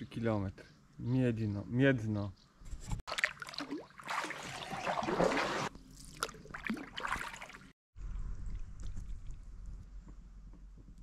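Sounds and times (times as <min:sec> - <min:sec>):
paddle splashing in water: 0:03.1 - 0:07.7.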